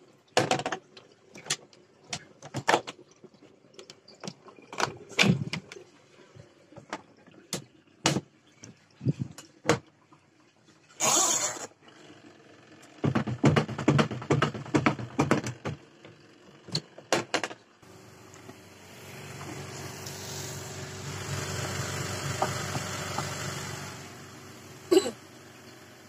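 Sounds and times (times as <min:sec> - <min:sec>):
washing machine motor hum: 0:17.8 - 0:26.0.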